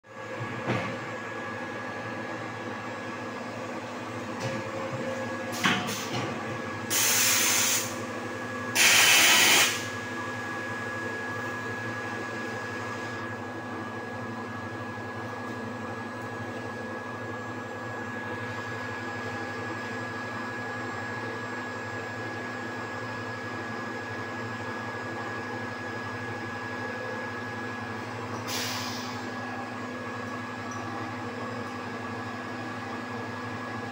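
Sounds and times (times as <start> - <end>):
machine hum with high whine: 0.0 - 33.9.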